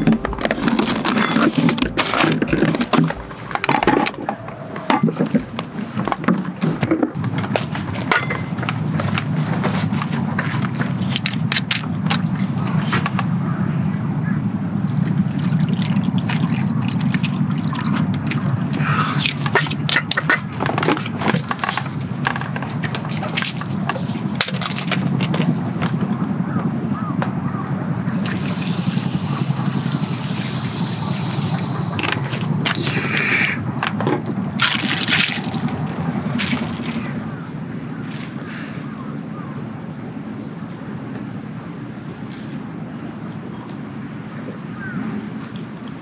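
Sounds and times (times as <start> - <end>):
steady low hum: 0.0 - 11.1, 11.9 - 42.9
steady low rumble: 0.0 - 11.1, 13.2 - 41.8
bottles and cups knocking: 8.0 - 8.7.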